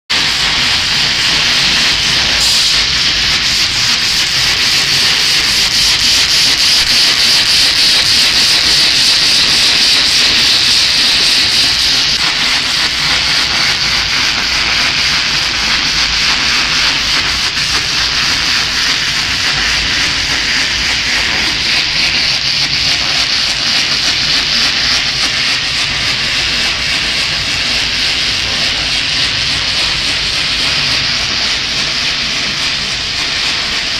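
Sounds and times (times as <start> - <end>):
die-cutting machine hiss: 0.1 - 33.9.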